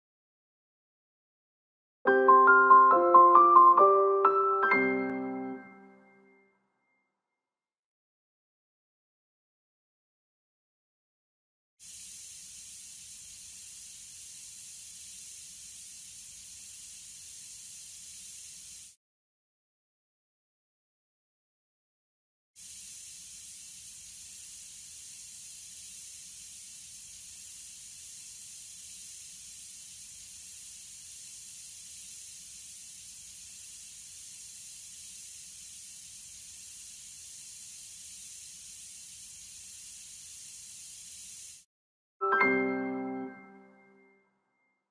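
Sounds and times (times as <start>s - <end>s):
musical chime: 2.1s - 6.5s, 42.2s - 44.2s
dental scaler water spray hiss: 11.8s - 19.0s, 22.6s - 41.7s.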